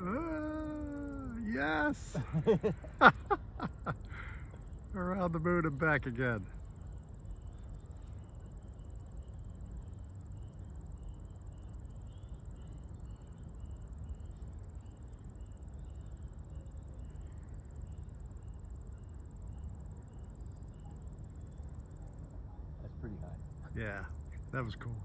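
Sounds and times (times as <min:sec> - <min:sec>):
insect chirping: 0:00.0 - 0:25.0
low steady rumble: 0:00.0 - 0:25.0.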